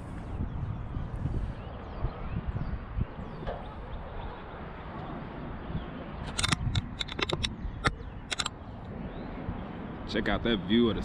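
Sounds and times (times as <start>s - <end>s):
wind buffeting microphone: 0.0s - 11.0s
sharp clicks: 6.3s - 8.6s.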